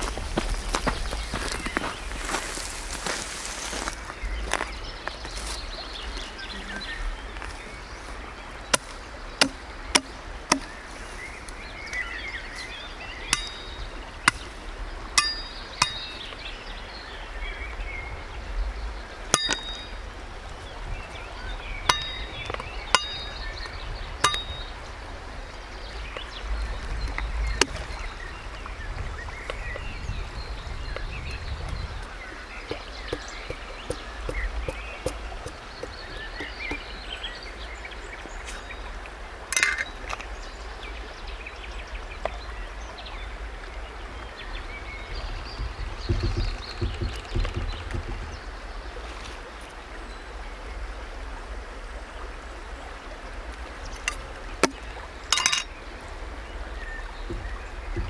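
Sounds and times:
birds chirping: 0.0s - 50.9s, 53.2s - 58.0s
knife chopping twigs: 8.8s - 10.7s, 32.7s - 36.8s.

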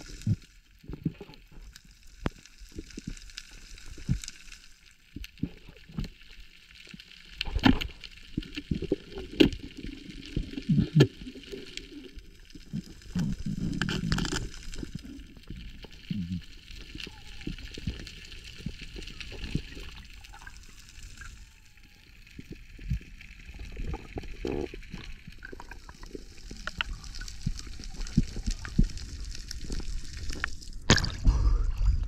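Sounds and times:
underwater clicks and knocks: 13.1s - 14.8s.

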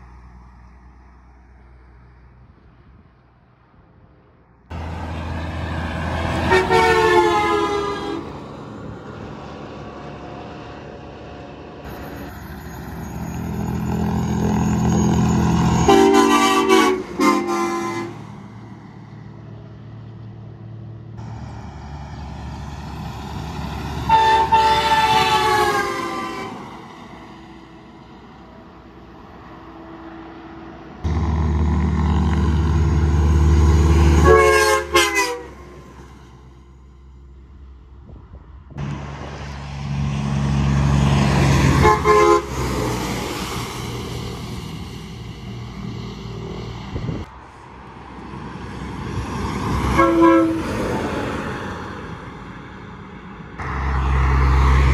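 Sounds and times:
truck diesel engines rumbling: 0.0s - 54.9s
truck train horn blasts: 6.2s - 8.4s, 14.4s - 18.4s, 24.0s - 26.8s, 33.8s - 35.8s, 41.6s - 42.9s, 49.9s - 50.9s.

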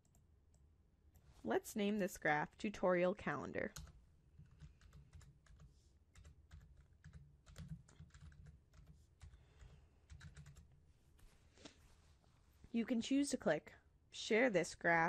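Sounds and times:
typing on computer keyboard: 3.7s - 10.8s.

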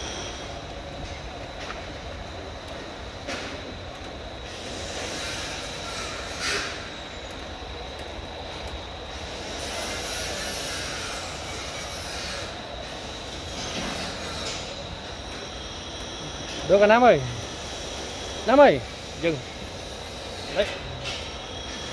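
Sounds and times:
machine noise: 0.0s - 21.9s
thin high whine: 9.1s - 21.9s.

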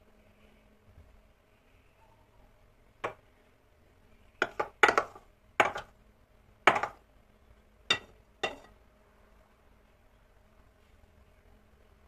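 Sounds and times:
ceramic cup clinking on glass bowl: 7.9s - 8.7s.

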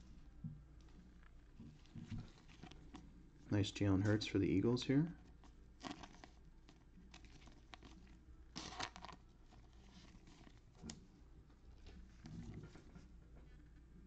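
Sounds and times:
trading cards rustling and sliding: 5.3s - 10.9s.

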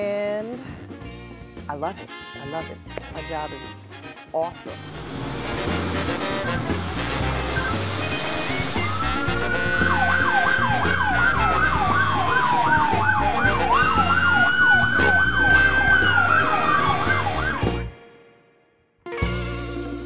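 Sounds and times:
background music: 0.0s - 20.0s
yelping siren: 4.8s - 17.9s
wailing siren: 4.8s - 18.0s.

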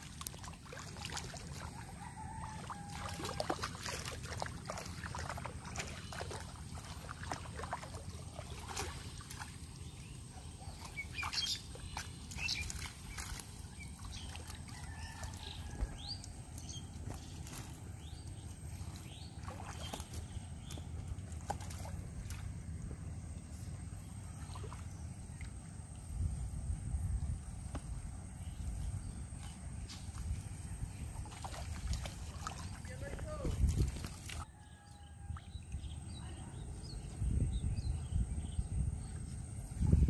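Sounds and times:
small splashes and clicks: 0.0s - 1.9s, 2.5s - 10.0s, 10.7s - 17.7s, 19.4s - 22.6s, 31.2s - 34.5s
water sloshing and splashing: 0.0s - 34.7s
steady low rumble: 4.1s - 32.8s, 35.4s - 40.0s.

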